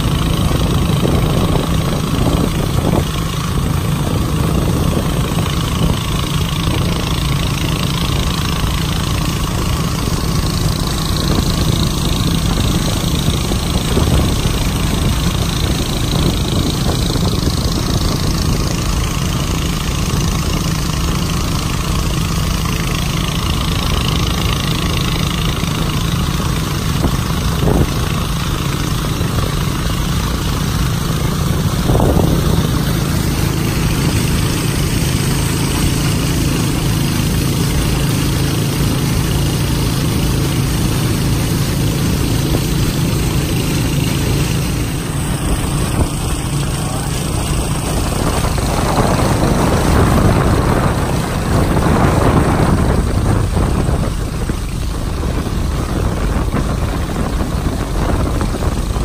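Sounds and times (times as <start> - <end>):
motorboat engine running: 0.0 - 59.0
water hissing from boat wake: 0.0 - 59.0.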